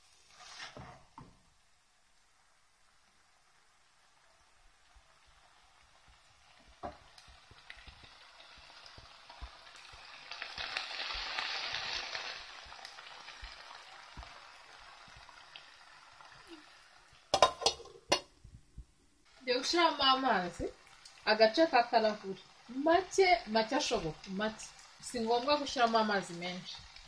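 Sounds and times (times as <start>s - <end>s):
sauce sizzling in a pan: 0.0s - 18.2s, 19.2s - 27.0s
lid clattering on a pan: 17.3s - 18.3s.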